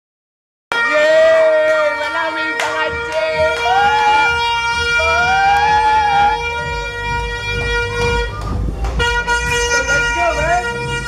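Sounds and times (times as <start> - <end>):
steady held horn tone: 0.7 - 11.0
wailing horn tone: 0.7 - 11.0
low rumble: 3.3 - 11.0.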